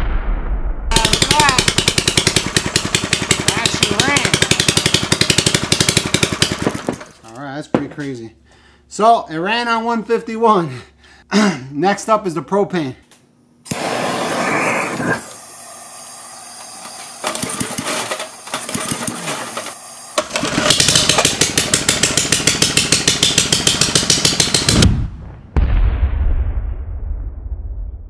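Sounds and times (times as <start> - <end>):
engine pops: 0.9 - 7.1
small engine running: 0.9 - 7.2, 13.7 - 24.8
gas hissing: 1.0 - 5.3, 13.7 - 22.9.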